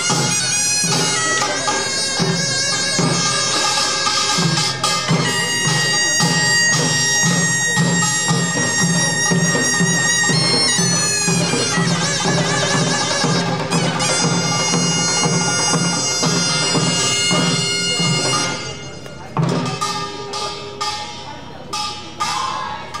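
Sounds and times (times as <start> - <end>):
drums beating: 0.0 - 23.0
shawm playing nasal melody: 0.0 - 23.0
gong clangs: 16.7 - 23.0.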